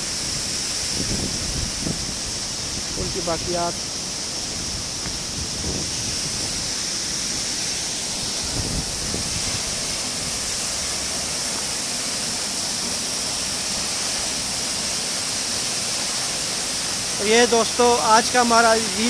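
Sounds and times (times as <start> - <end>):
waterfall pouring onto rocks: 0.0 - 19.0.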